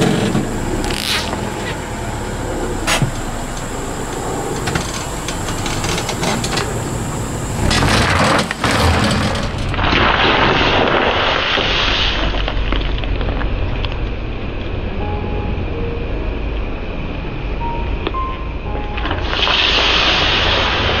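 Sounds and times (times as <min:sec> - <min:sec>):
water spraying with hissing rush: 0:09.7 - 0:12.6, 0:19.2 - 0:21.0.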